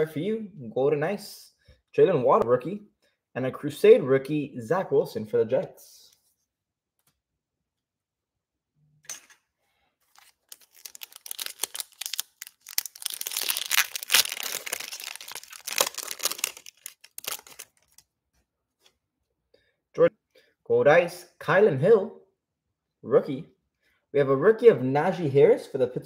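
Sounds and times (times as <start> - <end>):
foil wrapper tearing and crinkling: 10.1 - 18.0.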